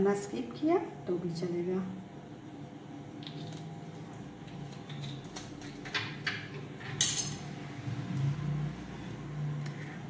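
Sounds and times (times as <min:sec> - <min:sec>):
whisk scraping glass bowl: 0:08.8 - 0:10.0.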